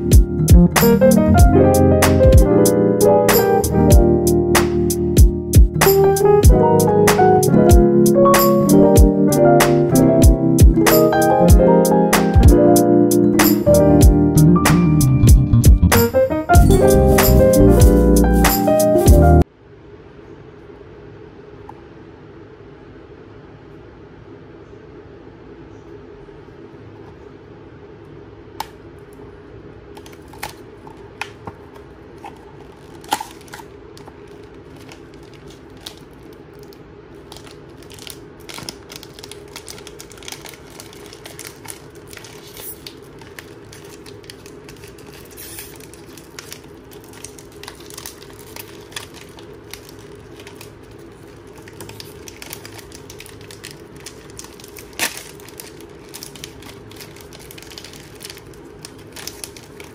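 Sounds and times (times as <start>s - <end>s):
steady low hum: 0.0s - 18.5s
plastic pouch crinkling and tearing: 30.0s - 59.9s.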